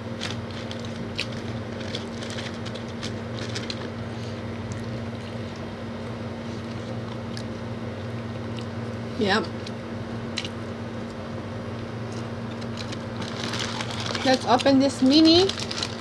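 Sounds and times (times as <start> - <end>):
low electrical hum: 0.0 - 16.0
chewing and mouth clicks: 4.6 - 9.0.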